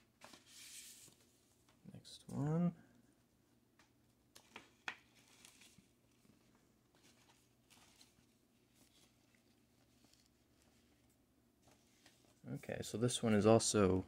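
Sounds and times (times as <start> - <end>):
record sleeve rustling: 0.0 - 1.8, 4.3 - 12.4.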